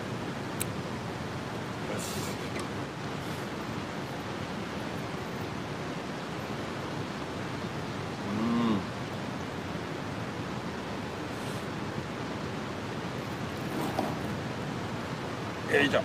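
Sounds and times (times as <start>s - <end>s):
man humming: 8.2s - 9.0s
outdoor rushing noise: 13.1s - 15.8s.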